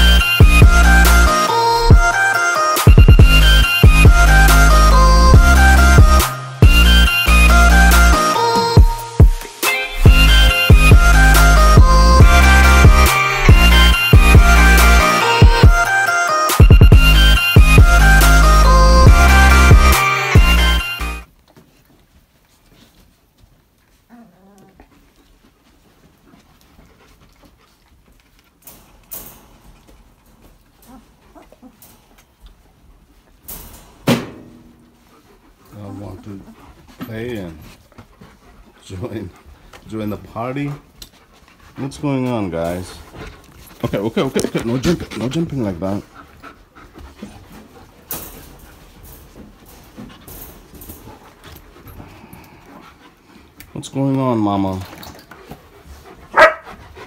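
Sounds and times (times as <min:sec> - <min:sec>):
rustling: 0:21.3 - 0:57.0
soft dog noises: 0:21.5 - 0:33.8, 0:34.8 - 0:57.0
dog whimpering: 0:24.1 - 0:24.9, 0:30.9 - 0:31.8.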